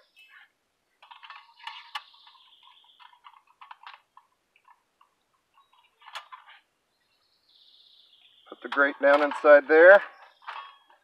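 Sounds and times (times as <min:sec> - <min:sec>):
metal stakes scraping: 0:00.0 - 0:06.7, 0:08.5 - 0:11.0
metal rods clicking: 0:01.0 - 0:06.6, 0:08.5 - 0:11.0.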